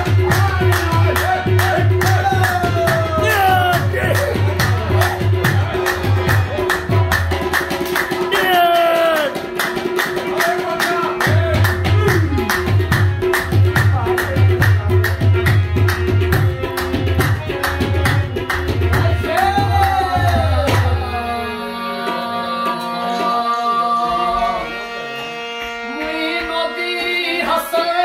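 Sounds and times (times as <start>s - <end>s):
tabla beating: 0.0s - 24.8s
harmonium: 0.0s - 28.0s
person singing: 2.2s - 4.6s, 8.3s - 9.4s.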